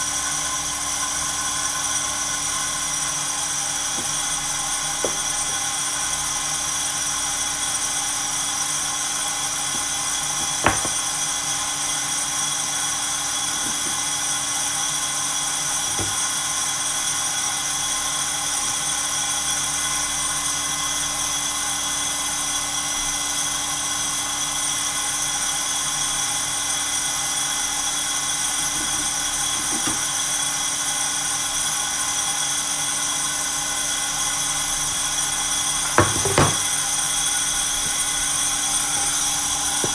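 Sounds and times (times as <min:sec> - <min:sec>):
coffee roaster whirring: 0:00.0 - 0:39.9.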